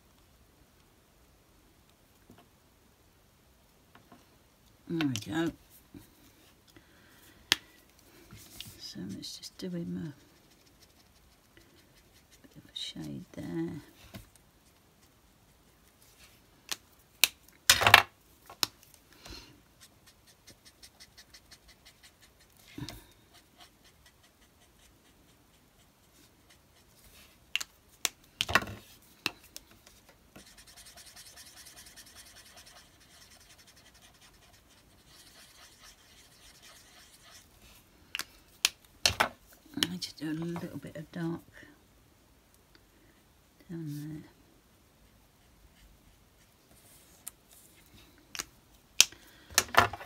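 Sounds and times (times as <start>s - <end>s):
marker nib scratching on card: 10.2s - 12.5s, 19.8s - 22.7s, 23.3s - 26.9s, 30.4s - 37.5s.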